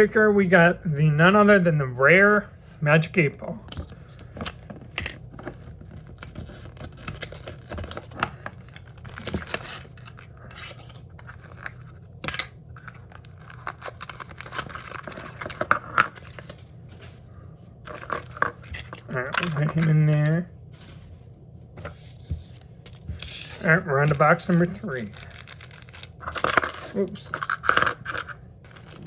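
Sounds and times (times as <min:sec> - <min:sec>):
packaging scratching and tearing: 0:05.2 - 0:16.9, 0:17.8 - 0:20.4, 0:22.7 - 0:29.0.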